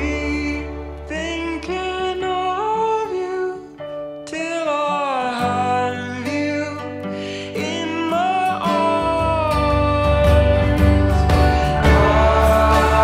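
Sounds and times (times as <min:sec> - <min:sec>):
acoustic guitar music: 0:00.0 - 0:13.0
low bass: 0:09.8 - 0:13.0
gliding melody line: 0:10.7 - 0:13.0.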